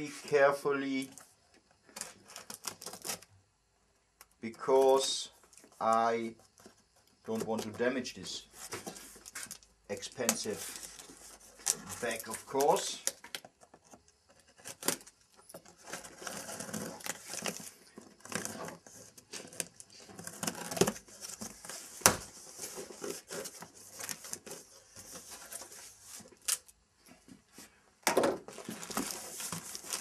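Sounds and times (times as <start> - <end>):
packing tape tearing: 1.9 - 3.3, 8.6 - 13.5, 14.5 - 26.7, 28.5 - 30.0
cardboard rustling and scraping: 4.6 - 30.0.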